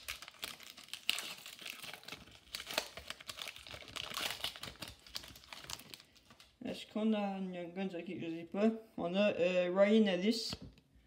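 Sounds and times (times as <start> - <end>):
wrapper crinkling and tearing: 0.0 - 6.6.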